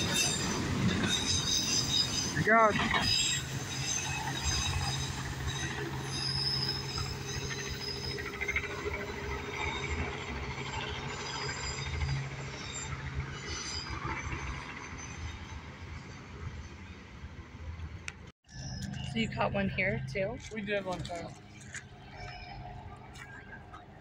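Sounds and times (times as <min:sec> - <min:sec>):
train wheels squealing: 0:00.0 - 0:17.0
freight train rumbling: 0:00.0 - 0:24.0.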